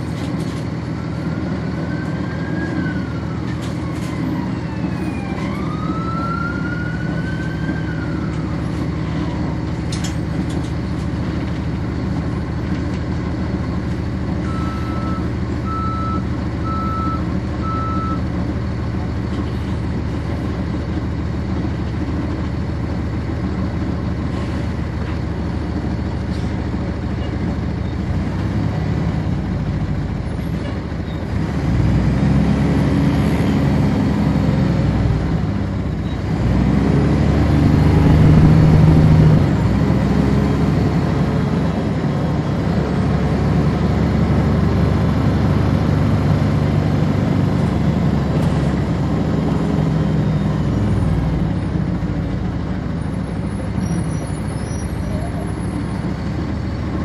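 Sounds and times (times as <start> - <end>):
siren wailing: 1.1 - 8.5
bus diesel engine idling: 6.5 - 31.5, 37.3 - 57.0.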